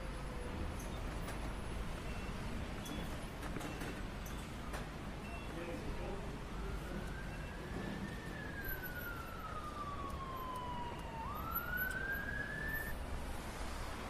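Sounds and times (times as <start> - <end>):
low traffic rumble: 0.0 - 14.0
emergency siren wailing: 6.0 - 13.0.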